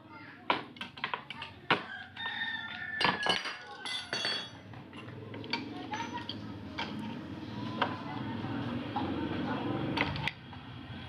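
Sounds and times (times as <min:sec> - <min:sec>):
metal tools clinking: 0:03.0 - 0:05.1.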